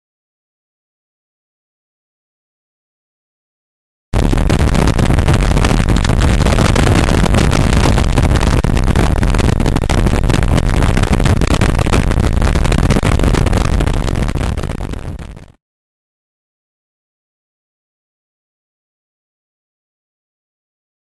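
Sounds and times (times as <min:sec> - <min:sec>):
wind buffeting microphone: 0:04.2 - 0:15.5.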